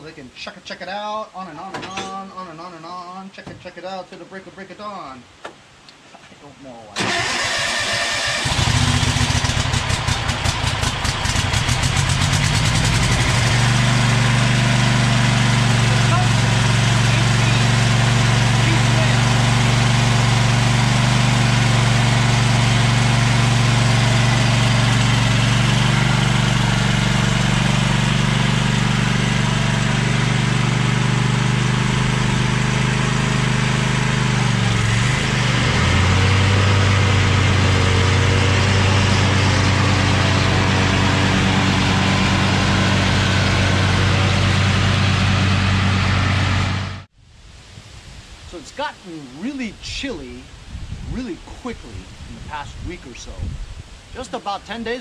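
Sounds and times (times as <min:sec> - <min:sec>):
lawn tractor engine running: 0:07.0 - 0:47.1.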